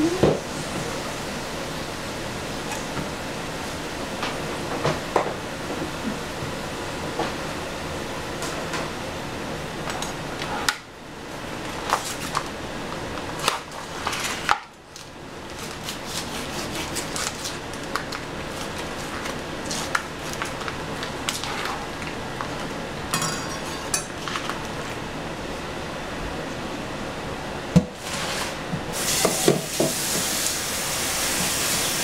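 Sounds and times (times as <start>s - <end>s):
plastic crinkling: 16.7s - 22.2s.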